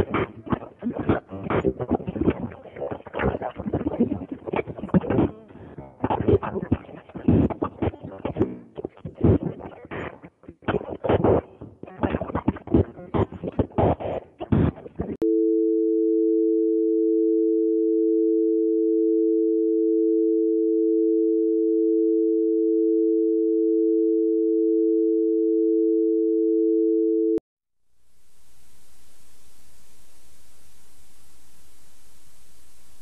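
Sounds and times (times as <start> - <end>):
choppy broken-up noise: 0.0 - 15.2.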